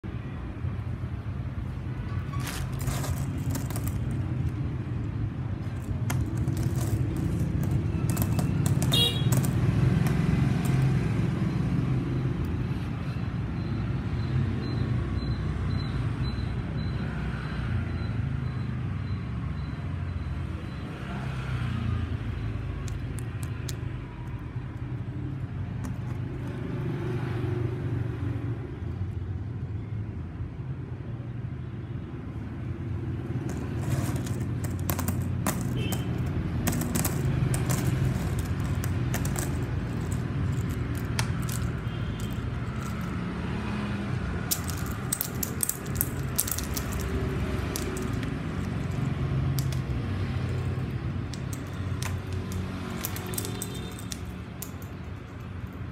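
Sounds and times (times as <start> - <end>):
low traffic rumble: 0.0 - 14.6, 20.5 - 29.6, 32.0 - 55.9
coins clicking: 2.4 - 4.7, 5.6 - 11.1, 22.8 - 24.5, 25.8 - 26.6, 33.4 - 43.2, 44.4 - 55.9.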